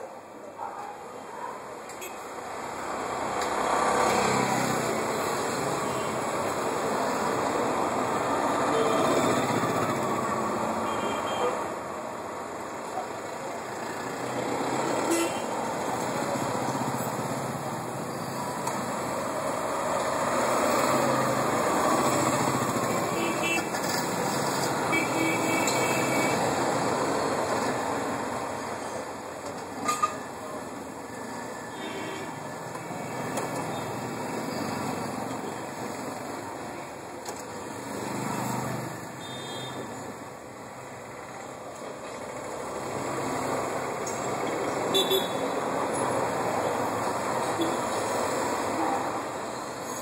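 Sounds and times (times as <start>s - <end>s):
passing traffic: 0.0s - 50.0s
motorcycle engines passing: 13.2s - 28.8s.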